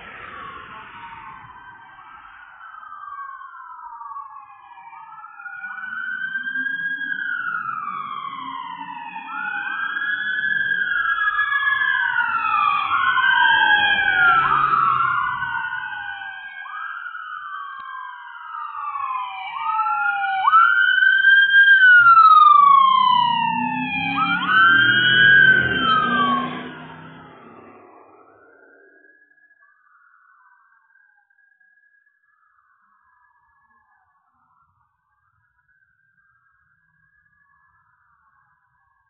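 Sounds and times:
emergency siren wailing: 0.0s - 39.0s
vehicle engine and tyres rumble: 6.3s - 16.8s, 21.3s - 29.0s.

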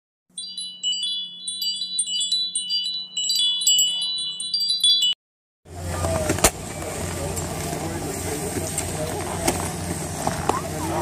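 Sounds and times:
chimes tinkling: 0.3s - 5.2s.

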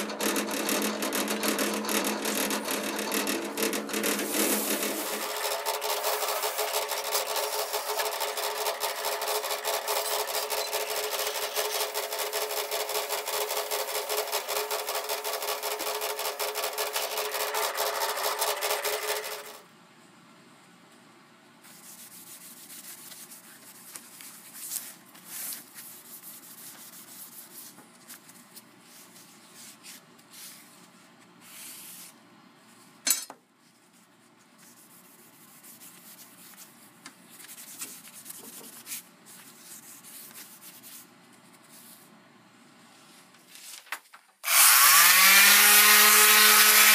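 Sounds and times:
sanding disc grinding steel: 0.1s - 19.6s, 44.5s - 46.9s
cloth rubbing on steel: 4.0s - 7.7s, 21.6s - 32.2s, 33.7s - 42.0s.

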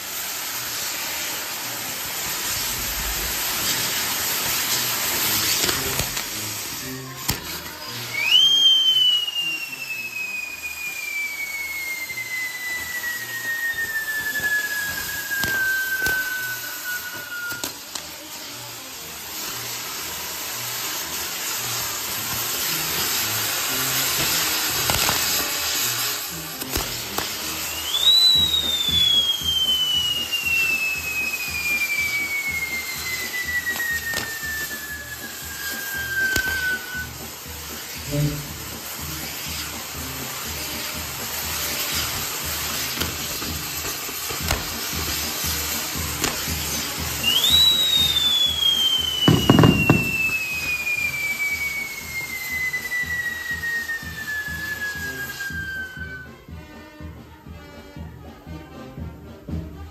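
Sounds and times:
firework whistle: 0.0s - 57.2s
burning fireworks hissing: 0.0s - 59.9s
sharp firework pops: 2.3s - 6.4s, 7.2s - 7.9s, 11.9s - 18.2s, 23.9s - 55.9s.

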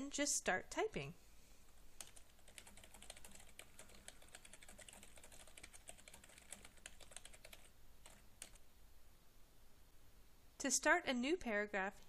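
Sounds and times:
computer keyboard typing: 2.0s - 8.6s.

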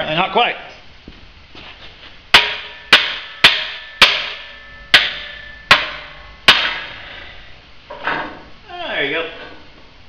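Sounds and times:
hammer striking steel tube: 2.3s - 7.4s.

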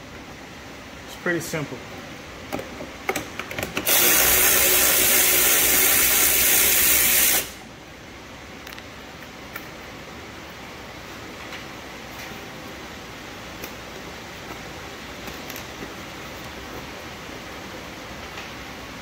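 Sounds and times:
electric ratchet motor whirring: 3.8s - 7.6s.

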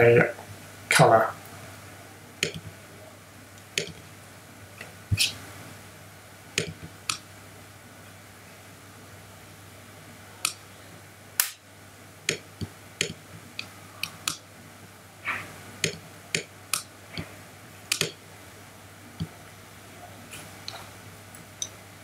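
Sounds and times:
faint low hum: 0.0s - 22.0s
computer mouse clicking: 3.8s - 4.0s, 17.9s - 18.1s.

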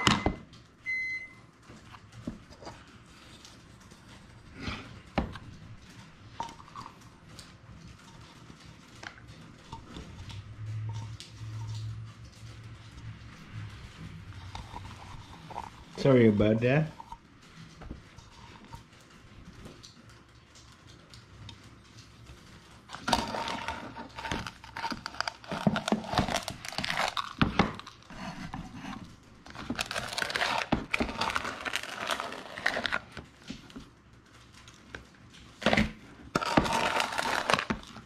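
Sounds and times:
cup scooping and scraping sugar: 14.2s - 17.2s, 22.9s - 33.2s, 35.6s - 38.0s.

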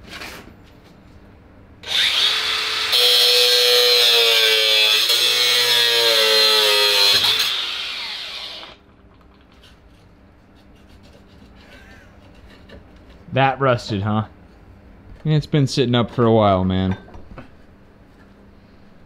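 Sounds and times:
angle grinder cutting steel: 1.8s - 8.8s.

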